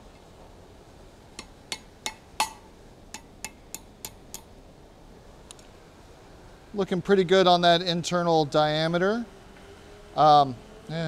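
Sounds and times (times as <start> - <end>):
hammer striking metal on anvil: 1.4 - 4.5.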